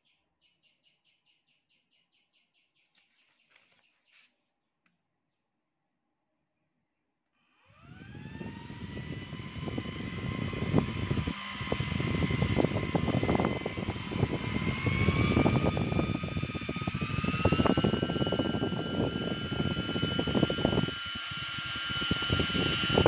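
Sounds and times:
cooling fan whine: 0:07.4 - 0:23.0.

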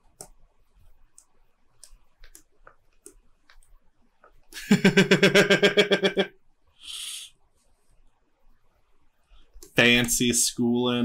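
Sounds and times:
faint mouse clicks: 0:00.1 - 0:00.4, 0:01.0 - 0:04.5, 0:09.4 - 0:10.2.

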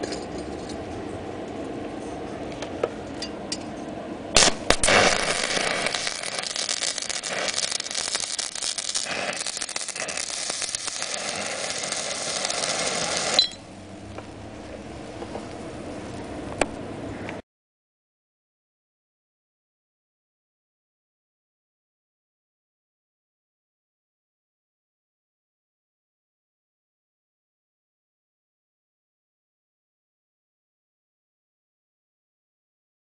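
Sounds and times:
sharp cracks of arc strike: 0:04.4 - 0:06.5
welding arc crackling: 0:04.4 - 0:16.8.

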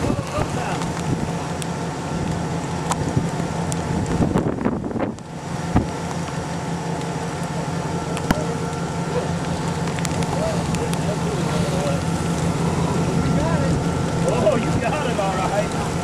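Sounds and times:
steady low hum: 0:00.0 - 0:16.0
wind rushing across microphone: 0:03.0 - 0:06.0.

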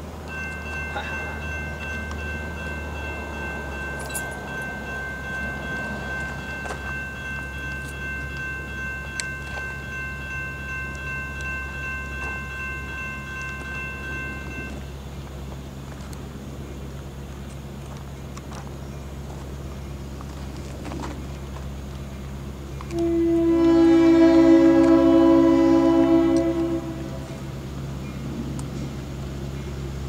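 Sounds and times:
crossing warning bell ringing: 0:00.0 - 0:15.3, 0:22.1 - 0:28.2
diesel locomotive rumble: 0:00.0 - 0:30.0.

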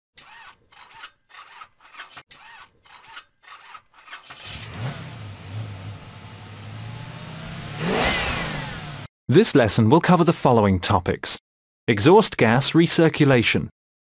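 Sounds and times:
car engine starting and revving: 0:04.4 - 0:09.1.

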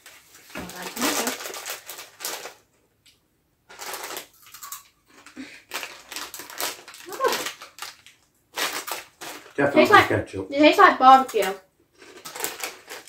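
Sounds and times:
crisp packet rustling and crinkling: 0:00.0 - 0:02.8, 0:03.7 - 0:10.1, 0:11.0 - 0:13.0.

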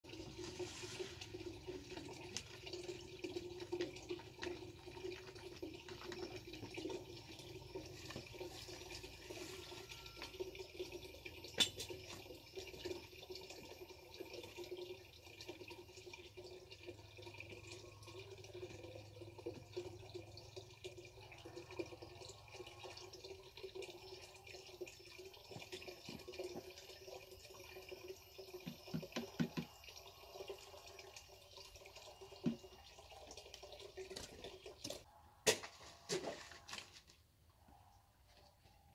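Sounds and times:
water splashing into plastic tank: 0:28.6 - 0:30.0.

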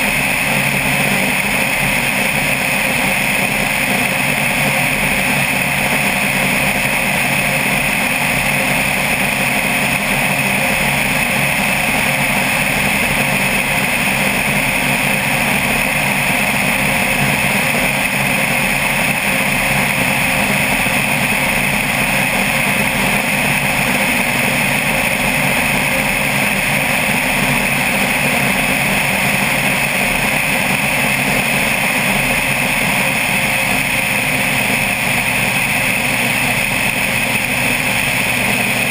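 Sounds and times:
propeller plane engine drone: 0:00.0 - 0:38.9.

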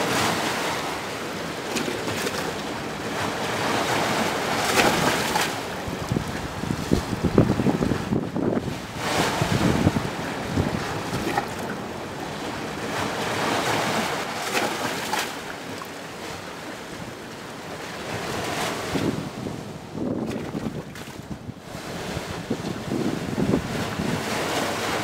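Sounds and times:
surf breaking on rocks: 0:00.0 - 0:11.8, 0:12.6 - 0:15.8.

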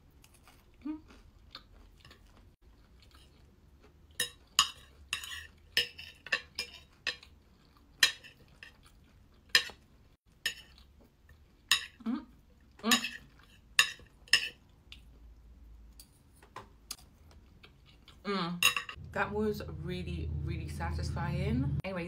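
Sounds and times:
cutlery clinking on a plate: 0:04.2 - 0:07.2, 0:12.9 - 0:14.6, 0:18.6 - 0:19.0.

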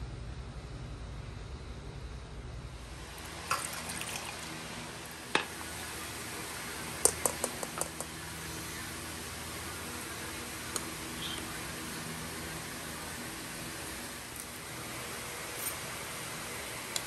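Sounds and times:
utensils clinking: 0:15.6 - 0:15.8.

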